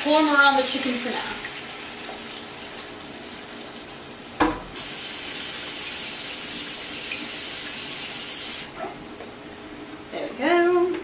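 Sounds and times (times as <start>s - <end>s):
tap water gushing: 0.0s - 10.0s
tap turning on knock: 4.4s - 4.7s.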